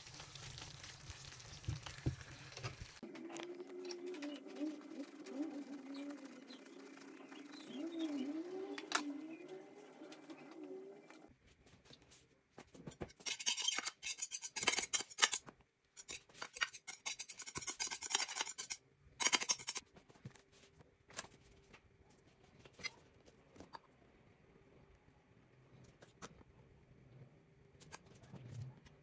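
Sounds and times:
knife scraping glass dish: 13.2 - 15.4, 16.0 - 19.8.

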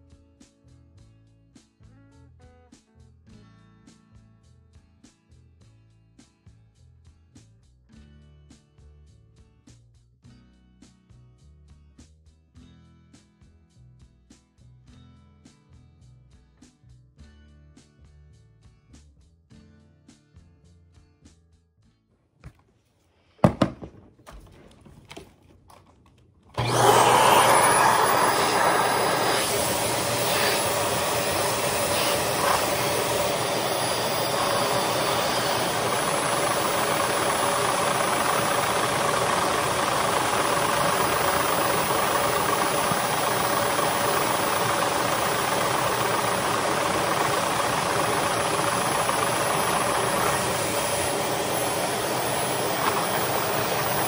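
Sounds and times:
vacuum cleaner running: 23.4 - 54.0.

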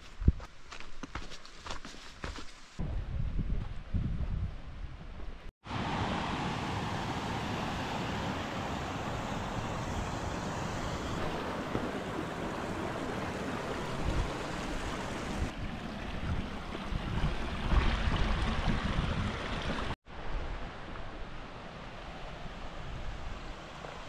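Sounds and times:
wind buffeting microphone: 2.8 - 5.4, 6.9 - 20.0
stream rushing among boulders: 5.7 - 20.0.

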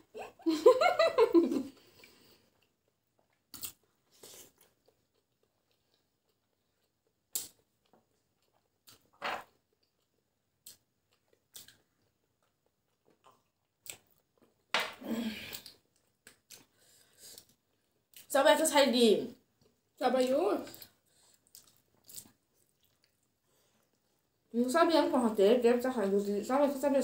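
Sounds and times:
people chewing and mouth smacks: 1.7 - 18.3, 20.6 - 24.5.

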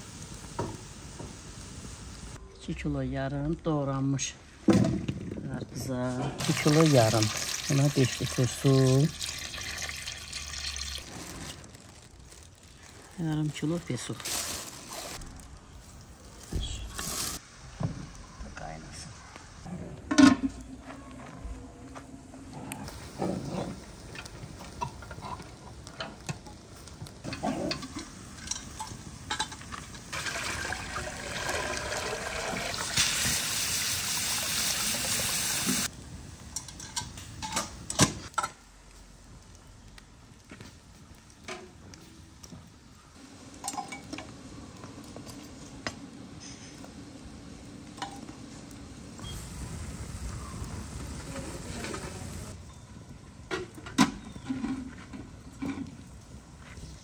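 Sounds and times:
cooking pots and lids clinking: 20.1 - 20.6, 27.2 - 33.1, 36.5 - 38.6, 43.6 - 44.3.

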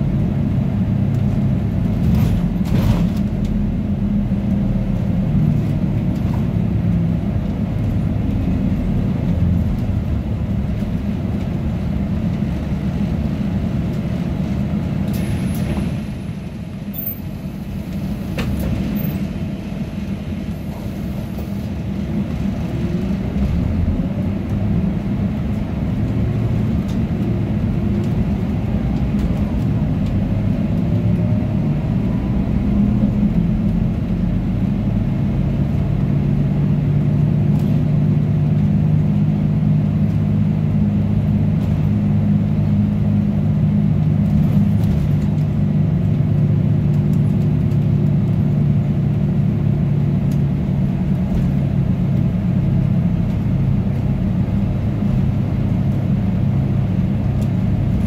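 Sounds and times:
bus engine and road rumble: 0.0 - 58.0.

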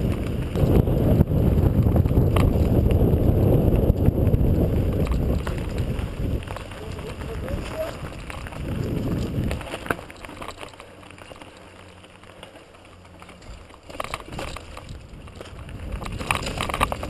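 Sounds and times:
wind rumble on microphone: 0.0 - 10.7, 13.4 - 17.0
bike rattling and clicking: 0.0 - 17.0
bike tyres rolling over stones: 0.0 - 17.0.

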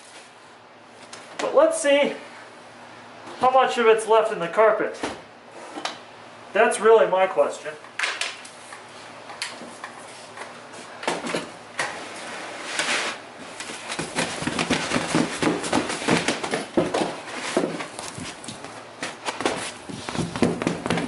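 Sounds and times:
carpet rustling and scraping on wood: 12.0 - 20.6
carpet flapping thumps: 13.7 - 21.0.

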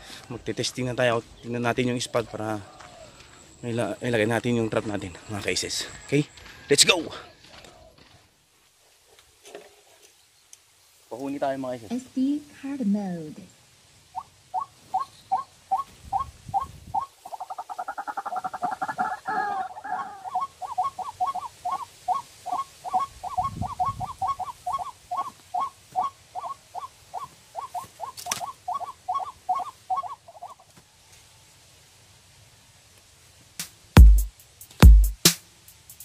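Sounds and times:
rapid bird chattering: 14.1 - 30.6
recorded bird calls from speaker: 14.2 - 30.6.

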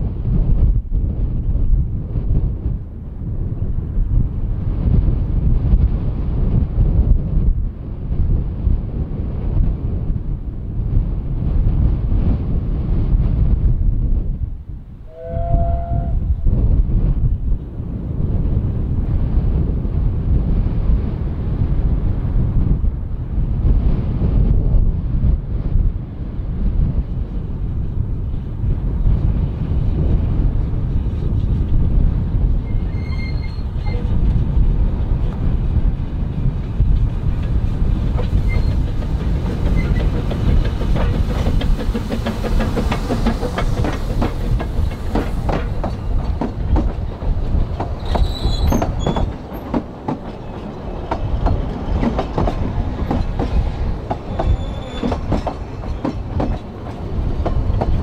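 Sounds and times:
steam train rumbling past: 0.0 - 58.0
high wheel squeals: 32.6 - 34.0, 38.4 - 38.9, 48.0 - 49.4, 54.3 - 55.2.

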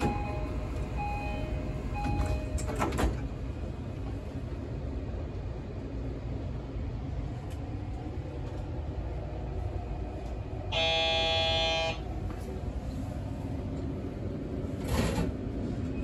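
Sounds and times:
train running low rumble: 0.0 - 16.0
train horn: 10.7 - 12.0.

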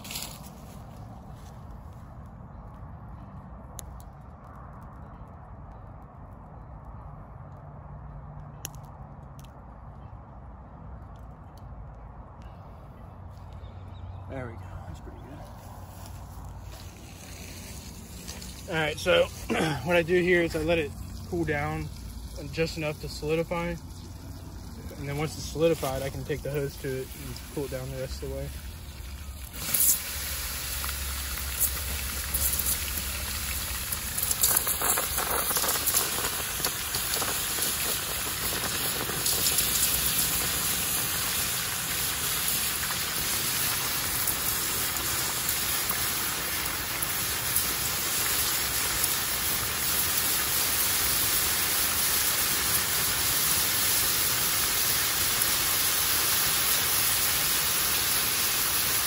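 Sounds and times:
sharp crackles: 0.0 - 14.3, 14.9 - 59.0
water hissing on hot metal: 16.7 - 59.0.

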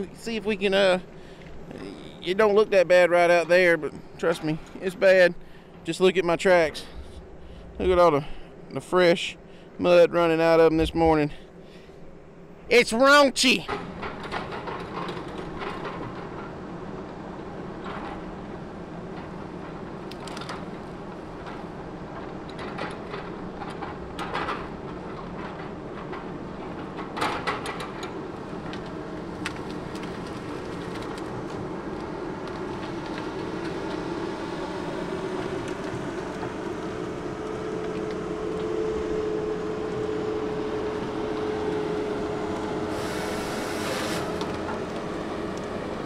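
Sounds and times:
logs knocking and cracking: 22.2 - 38.8
diesel engine droning: 27.8 - 46.0
burst of hiss: 42.9 - 44.4.

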